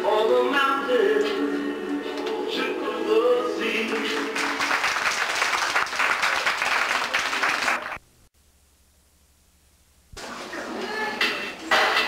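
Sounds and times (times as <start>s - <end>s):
song with singing: 0.0s - 4.8s
children clapping: 3.9s - 8.0s.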